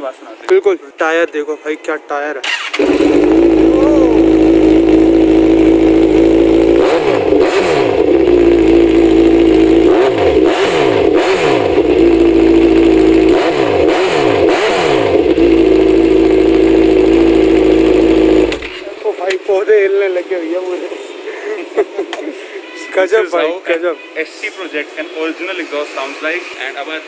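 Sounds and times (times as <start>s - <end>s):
motorcycle engine idling and revving: 2.5s - 19.0s.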